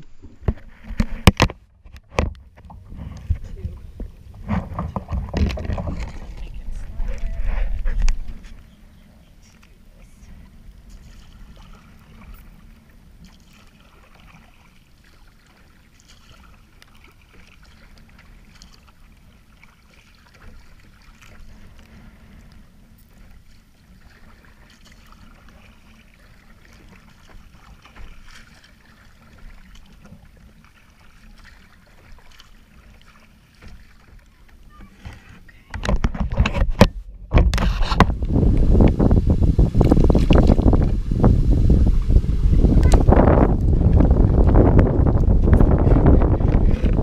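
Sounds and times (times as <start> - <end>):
waves lapping against plastic hull: 0.0 - 47.0
low rumble: 2.6 - 8.7, 36.9 - 47.0.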